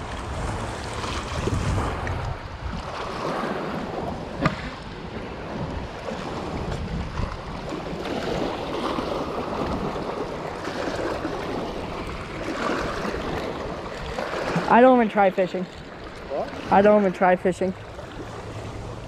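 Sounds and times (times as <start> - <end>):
wind buffeting microphone: 0.0 - 15.0
lake water lapping on rocky shore: 0.0 - 19.0.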